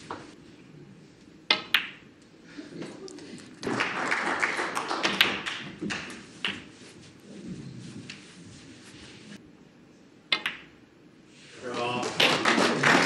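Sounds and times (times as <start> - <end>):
cue striking ball: 1.5 - 2.1, 5.0 - 6.7, 10.3 - 10.8
snooker balls clicking: 1.5 - 4.0, 4.7 - 6.8, 10.3 - 10.8
crowd noise: 11.7 - 13.0.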